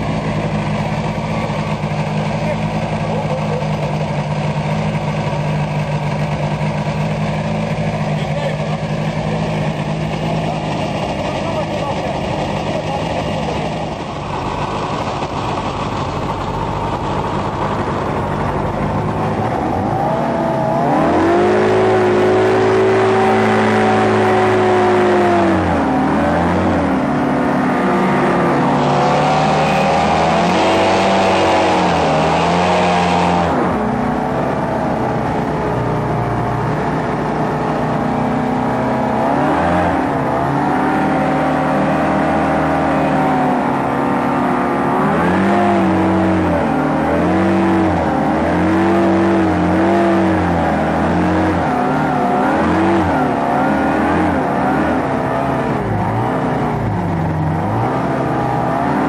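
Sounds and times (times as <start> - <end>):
hovercraft engine and fan: 0.0 - 41.6.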